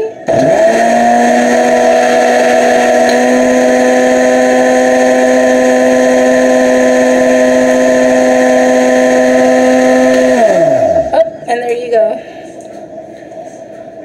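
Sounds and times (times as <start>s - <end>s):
blender running: 0.2s - 11.2s.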